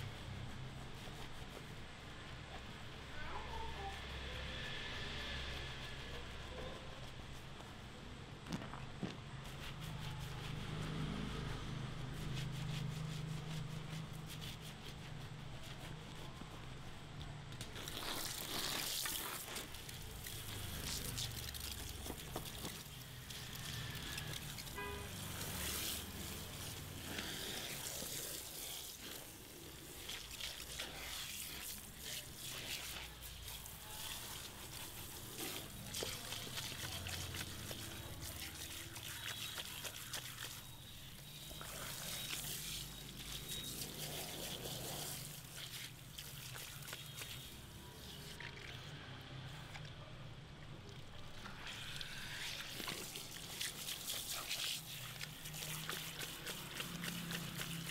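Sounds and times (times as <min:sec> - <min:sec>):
shower head spraying water: 0:17.8 - 0:46.2.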